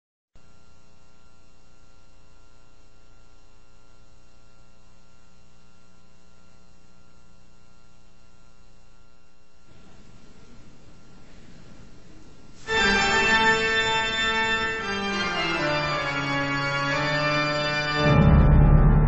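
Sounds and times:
electrical hum with hiss: 0.4 - 18.0
music: 12.6 - 19.0.

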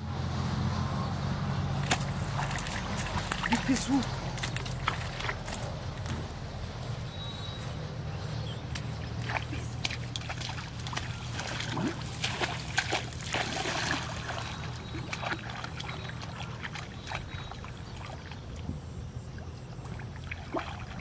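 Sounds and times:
person wading in water: 1.8 - 6.2, 8.8 - 21.0
fish thrashing in water: 1.8 - 6.4, 8.7 - 18.7, 19.8 - 21.0.

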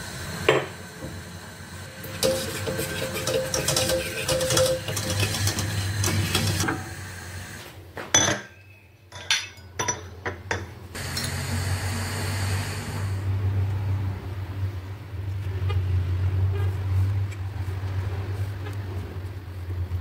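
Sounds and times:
low hum: 0.0 - 3.9
utensil stirring in saucepan: 2.0 - 6.6
metal clinking against pot: 8.2 - 10.6.

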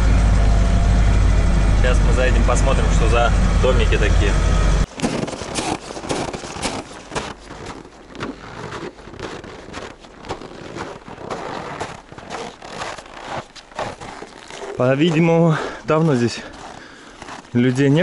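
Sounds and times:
footsteps crunching on snow: 4.9 - 18.0.

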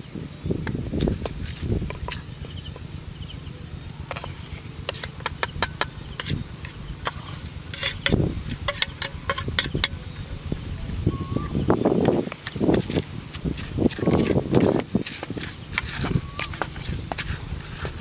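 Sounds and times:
low steady rumble: 0.0 - 18.0
metal spoon scraping ceramic plate: 4.1 - 10.0, 12.4 - 18.0.

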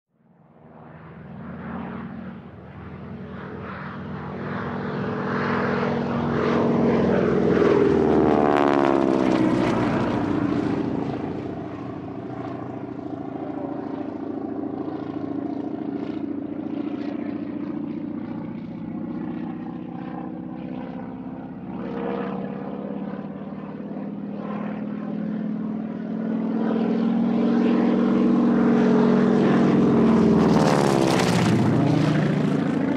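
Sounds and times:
propeller airplane flying past: 0.2 - 32.9.

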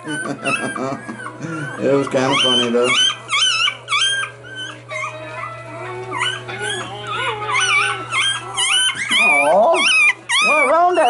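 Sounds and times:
puppies whimpering and squealing: 0.0 - 11.0.

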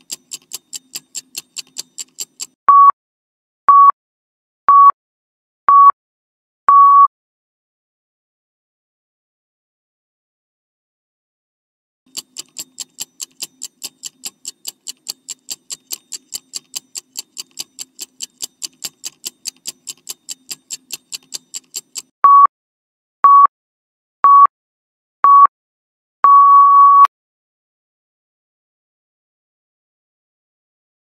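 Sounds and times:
clock-like timer ticking: 0.0 - 2.6, 12.1 - 22.1
short high beeps: 2.7 - 3.0, 6.7 - 7.1, 22.3 - 22.5, 26.3 - 27.1.

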